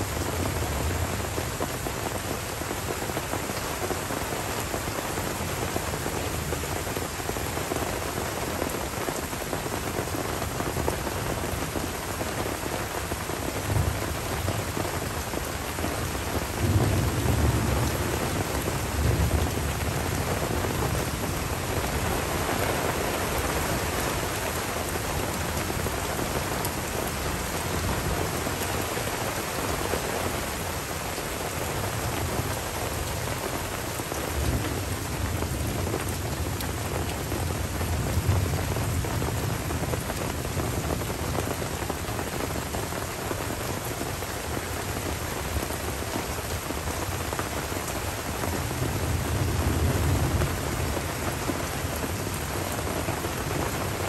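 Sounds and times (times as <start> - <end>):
rain falling on leaves: 0.0 - 54.0
low rumble of thunder: 13.6 - 30.8, 31.4 - 41.9, 48.4 - 54.0.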